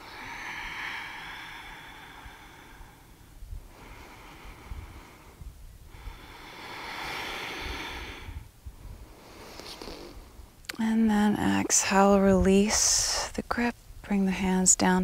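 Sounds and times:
woman breathing deeply: 0.0 - 10.4
wind rumbling on microphone: 0.0 - 15.0.

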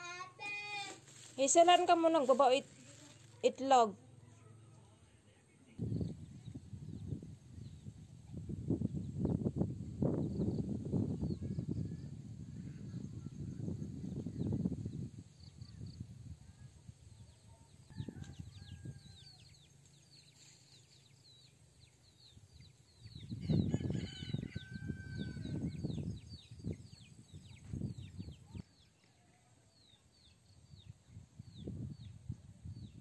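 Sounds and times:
wind gusts on microphone: 5.8 - 19.6, 22.1 - 28.8, 30.2 - 33.0
small birds chirping: 10.1 - 33.0
rooster crowing: 23.4 - 25.7.

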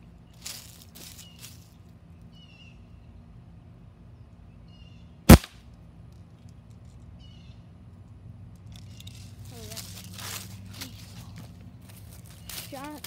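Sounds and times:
air rifle shot: 5.3 - 5.6.

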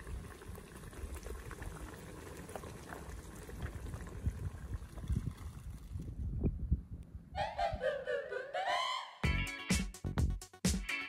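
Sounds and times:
stew bubbling in a pot: 0.0 - 6.0.

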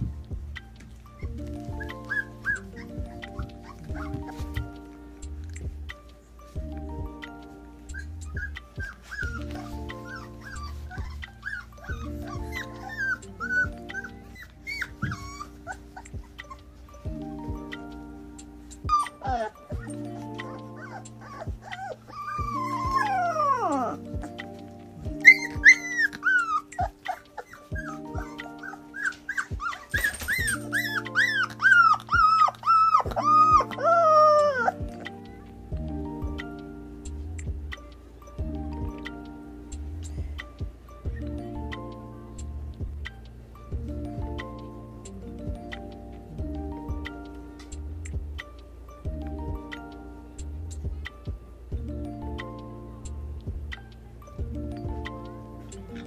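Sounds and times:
background music: 0.0 - 56.0
puppies whimpering: 1.1 - 5.4, 7.4 - 37.2.

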